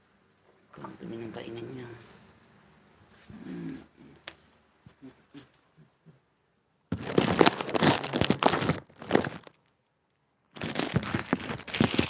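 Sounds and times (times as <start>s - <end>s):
packaging crinkling and rustling: 6.9s - 12.0s.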